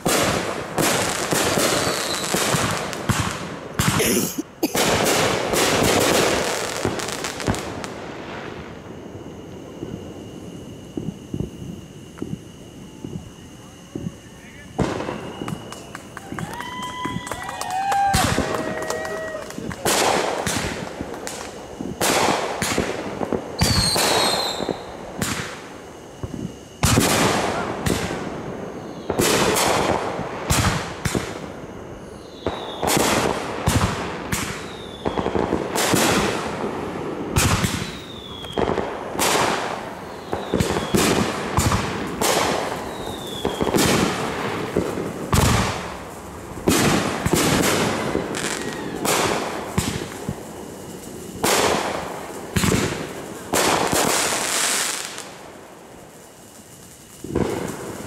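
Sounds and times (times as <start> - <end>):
fireworks bangs: 0.0 - 58.0
fireworks crackling: 0.0 - 58.0
falling whistles: 1.0 - 2.8, 8.8 - 22.4, 23.5 - 29.6, 30.7 - 33.2, 34.4 - 35.4, 37.6 - 41.4, 42.4 - 44.3, 46.9 - 51.1.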